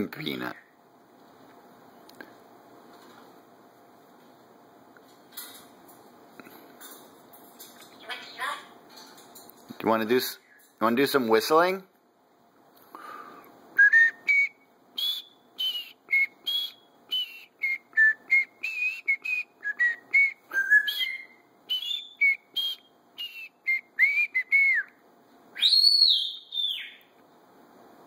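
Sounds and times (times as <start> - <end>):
parrot whistling: 13.8 - 24.9, 25.6 - 27.0.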